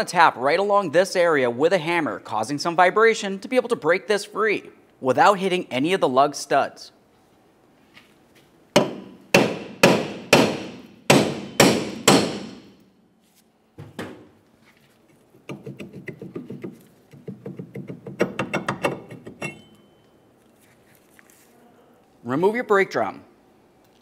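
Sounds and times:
hammer striking metal drum: 8.8 - 12.8, 17.4 - 19.8.

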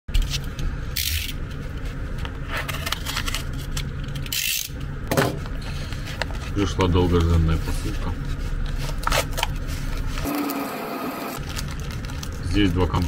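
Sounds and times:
paper envelope rustling: 11.4 - 13.0.

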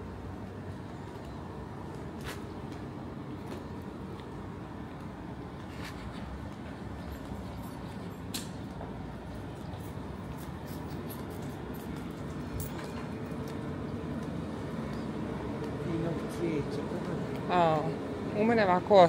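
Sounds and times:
city street rumble: 0.0 - 19.0.

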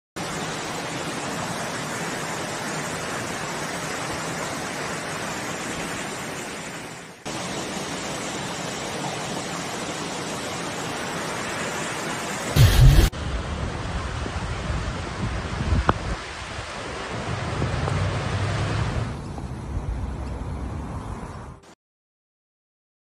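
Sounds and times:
floodwater rushing: 0.2 - 13.8
loud low rumble: 12.6 - 13.1.

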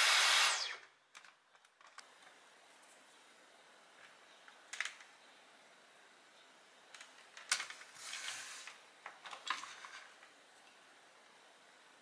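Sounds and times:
scraping rustle: 7.6 - 8.8.

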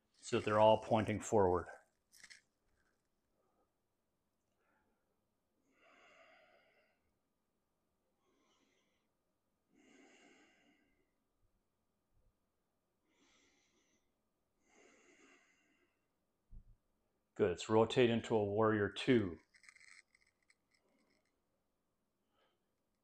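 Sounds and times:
soft slow breathing: 5.6 - 7.1, 8.2 - 11.1, 13.0 - 16.1.

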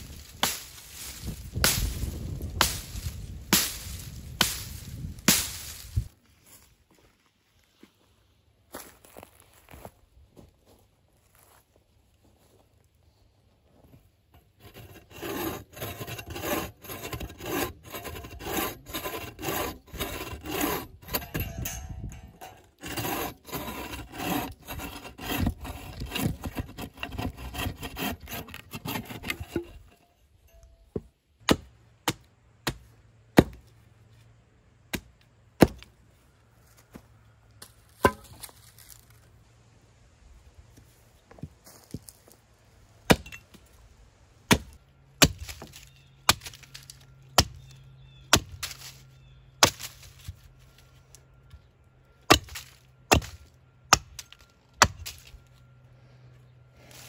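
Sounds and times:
hatchet chopping wood: 3.5 - 4.7, 30.9 - 33.7, 34.9 - 35.9, 38.0 - 38.4, 43.1 - 43.5, 44.5 - 46.8, 47.4 - 47.6, 48.3 - 48.8, 49.6 - 50.0, 52.3 - 55.3
saw cutting through log: 14.4 - 30.0.

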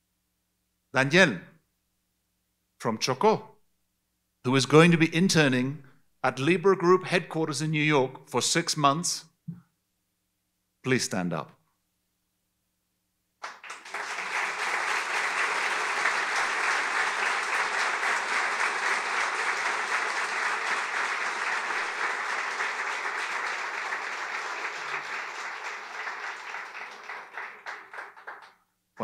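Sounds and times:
audience applauding: 13.4 - 28.6.

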